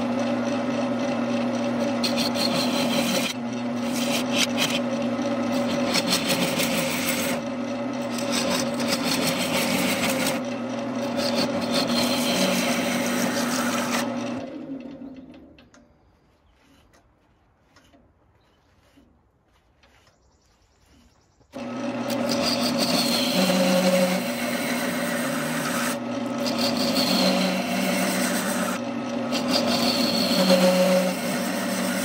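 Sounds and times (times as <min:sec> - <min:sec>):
gouge shaving wood on a lathe: 0:00.0 - 0:14.9, 0:21.6 - 0:32.0
lathe motor humming: 0:00.0 - 0:15.7, 0:21.6 - 0:32.0.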